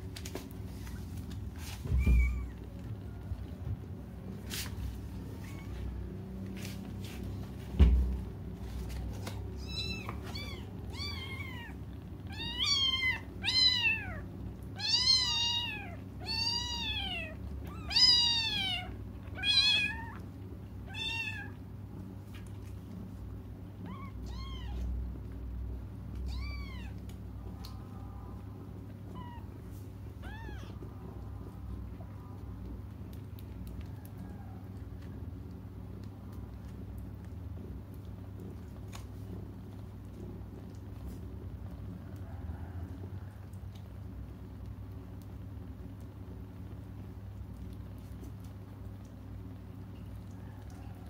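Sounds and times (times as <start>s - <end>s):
kittens mewing: 1.8s - 3.0s, 9.4s - 20.2s.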